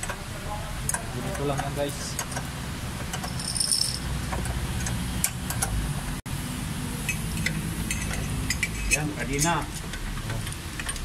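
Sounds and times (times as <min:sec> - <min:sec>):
metal chain clinking: 0:03.2 - 0:04.0.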